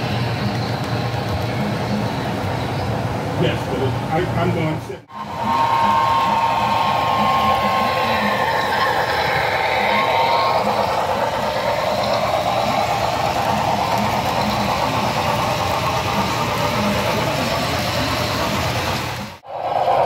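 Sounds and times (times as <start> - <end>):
model steam locomotive chuffing: 0.0 - 2.2, 5.1 - 19.4
wheels rumbling on track: 5.1 - 19.4.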